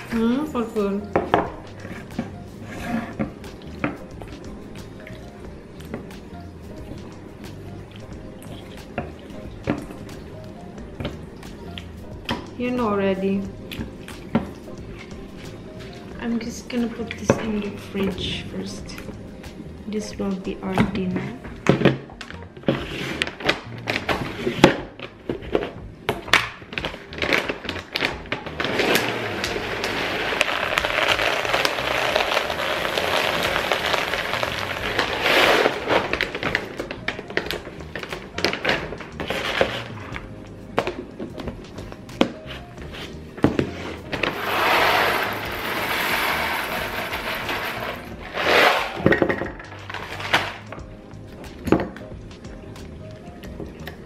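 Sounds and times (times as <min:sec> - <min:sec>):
bag and container clicks: 0:26.4 - 0:40.0
kibble pouring into plastic container: 0:27.2 - 0:36.6, 0:44.3 - 0:50.6.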